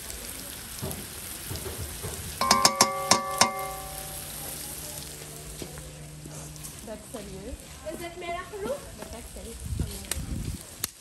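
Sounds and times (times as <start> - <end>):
curry sizzling in a pan: 0.0 - 11.0
metal spoon rapping a pan: 2.4 - 4.4.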